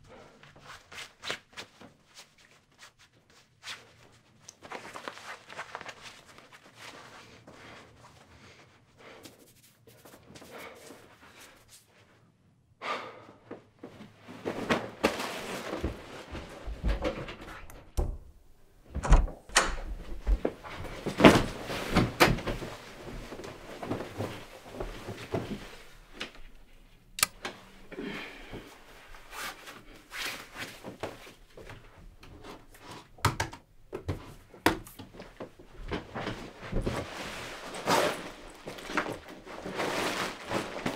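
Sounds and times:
rustling: 0:00.6 - 0:12.2, 0:13.8 - 0:17.7, 0:19.8 - 0:33.1, 0:34.2 - 0:40.9.

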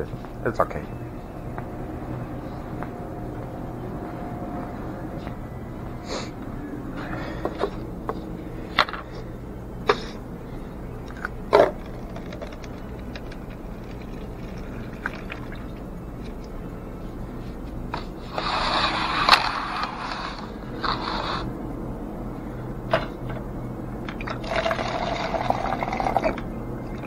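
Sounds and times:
electrical hum: 0:00.0 - 0:27.0
liquid pouring: 0:11.1 - 0:15.8, 0:24.1 - 0:26.4.

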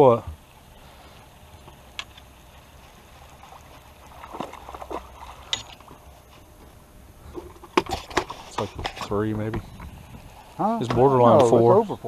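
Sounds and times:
fish thrashing in water: 0:03.3 - 0:06.1.

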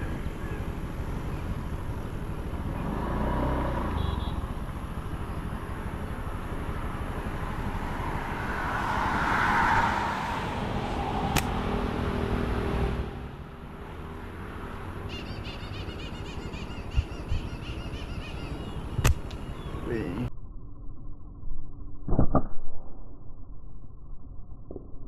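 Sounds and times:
road vehicle passing: 0:00.0 - 0:20.3
faint bird twittering: 0:15.1 - 0:20.3.

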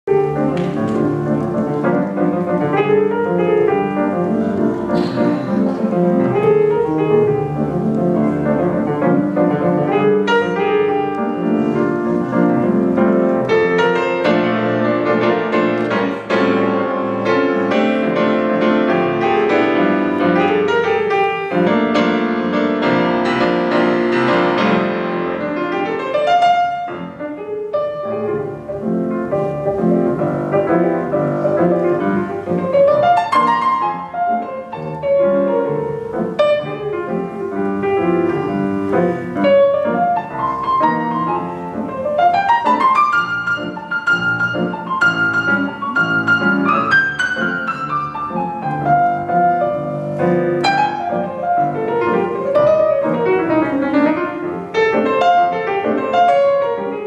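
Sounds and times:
solo piano playing: 0:00.0 - 0:57.0.

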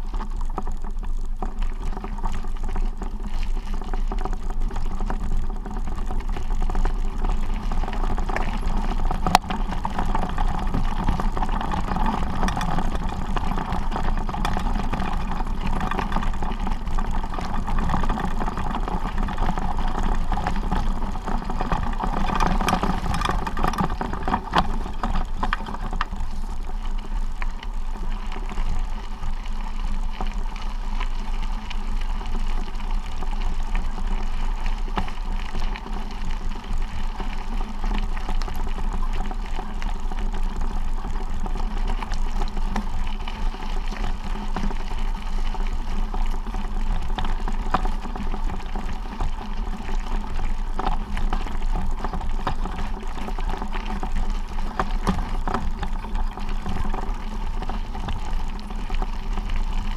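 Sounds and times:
wind rumble on microphone: 0:00.0 - 0:59.9.

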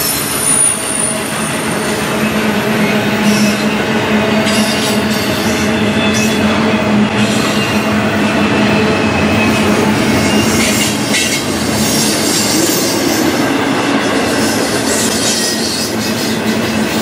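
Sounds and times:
train wheels rumbling on rail: 0:00.0 - 0:17.0
high-pitched wheel squeal: 0:08.6 - 0:13.1.

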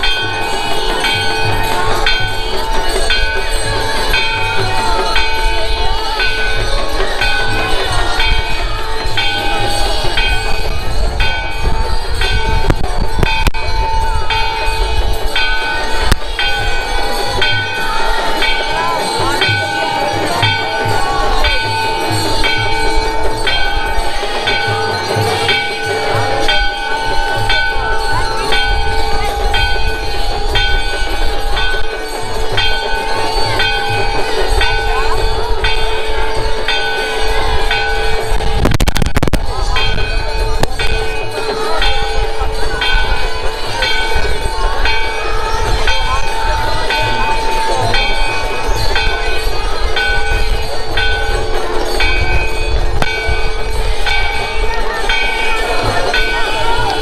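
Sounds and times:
temple bells ringing: 0:00.0 - 0:57.0.

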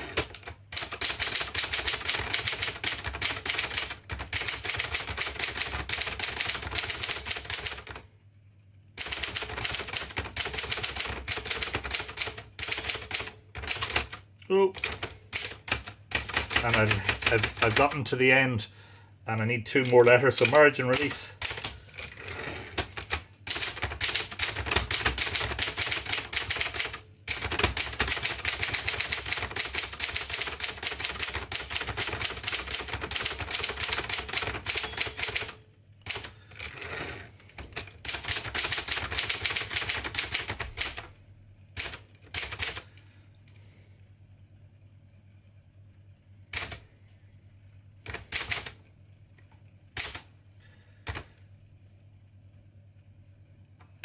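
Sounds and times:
manual typewriter keystrokes clacking: 0:00.0 - 0:08.0, 0:09.0 - 0:14.2, 0:14.8 - 0:18.0, 0:19.8 - 0:22.2, 0:22.8 - 0:36.9, 0:37.6 - 0:41.1, 0:41.8 - 0:42.9, 0:46.5 - 0:46.8, 0:48.0 - 0:48.8, 0:50.0 - 0:50.3.

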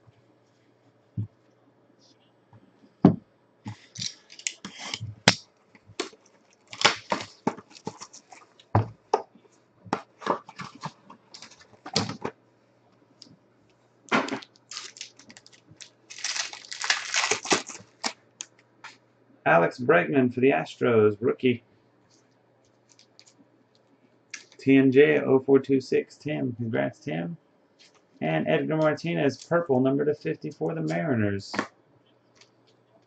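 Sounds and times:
foil wrapper crinkling: 0:03.8 - 0:05.4, 0:06.0 - 0:08.7, 0:14.2 - 0:18.5, 0:22.8 - 0:23.4.

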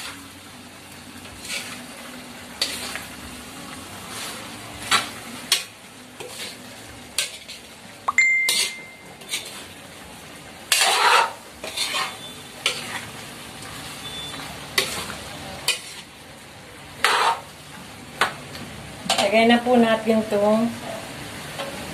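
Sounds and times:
food sizzling in wok: 0:00.0 - 0:21.9
metal spatula scraping wok: 0:01.2 - 0:03.2, 0:04.0 - 0:07.8, 0:08.4 - 0:09.9, 0:10.6 - 0:16.2, 0:17.0 - 0:17.5, 0:19.0 - 0:19.4.

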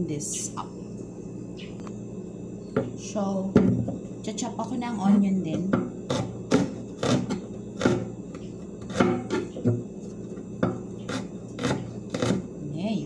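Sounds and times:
knife chopping on wooden board: 0:05.5 - 0:08.1, 0:08.8 - 0:09.8, 0:10.6 - 0:12.5.

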